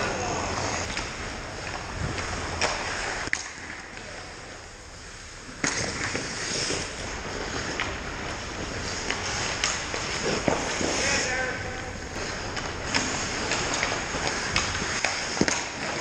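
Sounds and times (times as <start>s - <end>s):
hockey sticks and puck knocking: 0.0s - 4.1s, 5.6s - 16.0s
skate blades scraping on ice: 0.0s - 4.4s, 5.0s - 16.0s.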